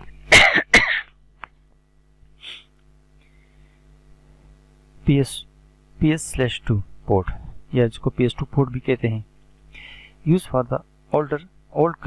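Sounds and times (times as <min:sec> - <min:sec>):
faint steady hum: 0:00.0 - 0:12.0
man's explosive breath bursts: 0:09.7 - 0:10.2.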